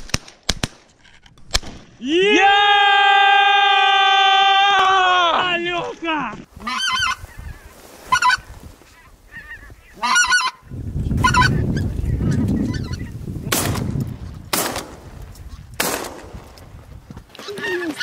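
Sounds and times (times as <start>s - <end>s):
geese honking: 6.6s - 13.2s.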